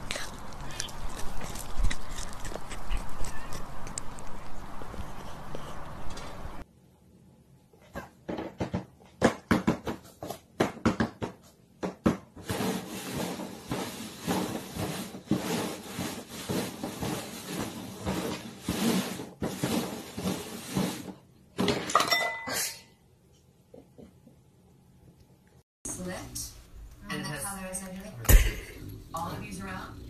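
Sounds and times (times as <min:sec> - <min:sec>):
cups scraping on cardboard: 0:12.4 - 0:21.2.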